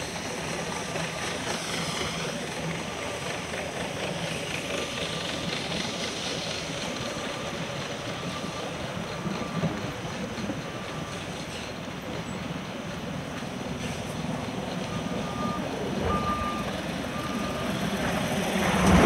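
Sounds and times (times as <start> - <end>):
faint short beeps: 15.0 - 17.6.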